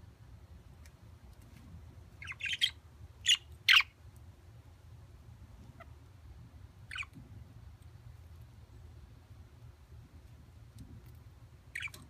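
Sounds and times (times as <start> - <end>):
budgerigar harsh chirps: 2.2 - 3.9.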